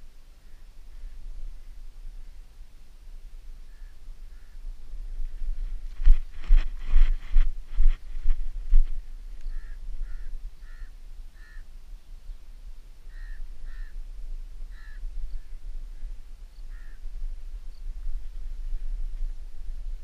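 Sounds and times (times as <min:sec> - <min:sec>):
bird calling: 0:09.4 - 0:11.7, 0:13.1 - 0:14.0, 0:14.7 - 0:17.1.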